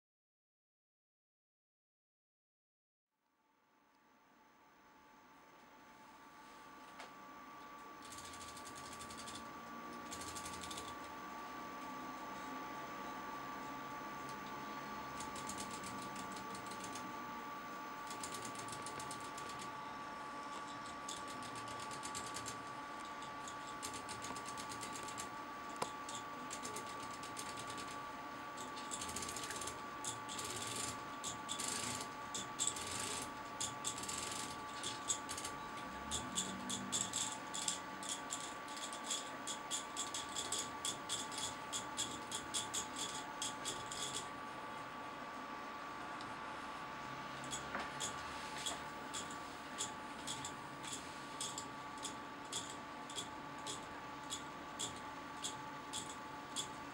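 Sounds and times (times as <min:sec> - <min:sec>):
faint steady whine: 0:03.3 - 0:56.9
plastic clock parts ticking: 0:36.1 - 0:44.3.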